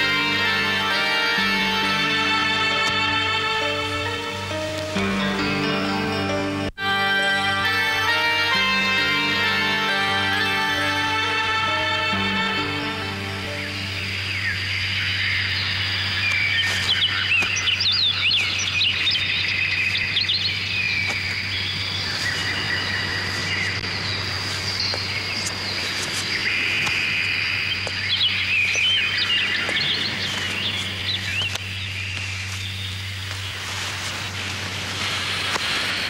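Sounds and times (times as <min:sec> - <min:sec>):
steady high tone: 0:00.0 - 0:14.7
small birds chirping: 0:07.7 - 0:36.0.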